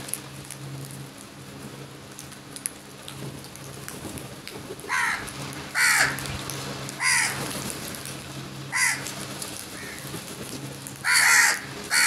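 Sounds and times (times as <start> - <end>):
crows cawing: 4.9 - 6.2, 7.0 - 7.5, 8.7 - 9.1, 9.8 - 10.1, 11.0 - 12.0
beaks pecking on concrete: 8.7 - 12.0.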